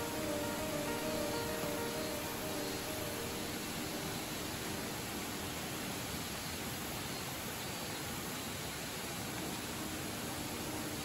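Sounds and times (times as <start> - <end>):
faint background music: 0.0 - 7.8, 8.9 - 11.0
waterfall rushing: 0.0 - 11.0.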